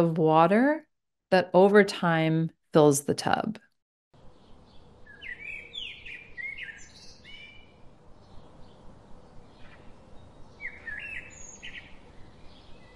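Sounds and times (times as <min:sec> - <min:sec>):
birds chirping: 0:04.2 - 0:12.9
faint outdoor hiss: 0:04.2 - 0:12.9.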